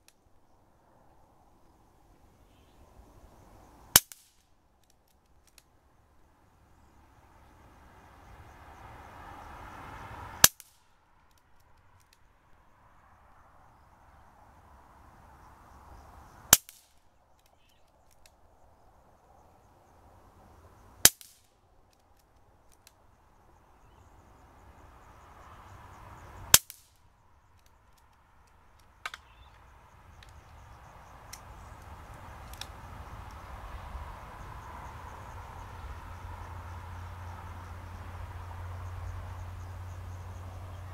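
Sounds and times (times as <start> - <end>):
faint clicks: 4.0 - 5.7, 10.4 - 12.3, 16.6 - 18.4, 21.1 - 23.0, 26.5 - 30.6, 31.3 - 33.4.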